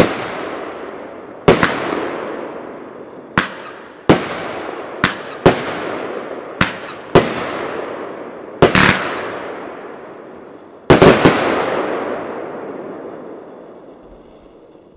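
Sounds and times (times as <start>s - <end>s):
crackling hiss of firework sparks: 0.0s - 14.9s
fireworks reports: 8.5s - 10.0s.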